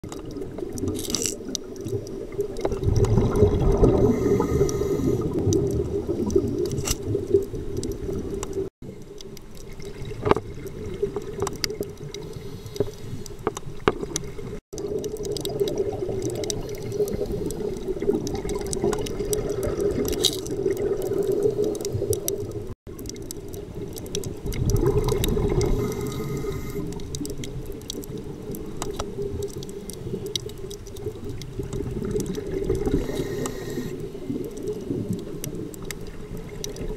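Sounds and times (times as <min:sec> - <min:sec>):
rushing bubbles underwater: 0:00.0 - 0:12.5, 0:13.7 - 0:36.9
diver breathing through regulator: 0:03.9 - 0:05.4, 0:12.3 - 0:13.3, 0:25.6 - 0:27.0, 0:32.9 - 0:34.0.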